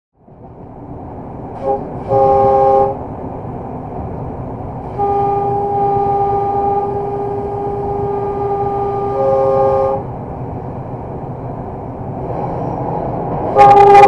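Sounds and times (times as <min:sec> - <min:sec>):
locomotive running rumble: 0:00.2 - 0:14.0
locomotive horn: 0:01.6 - 0:03.0, 0:04.9 - 0:10.1, 0:13.5 - 0:14.0.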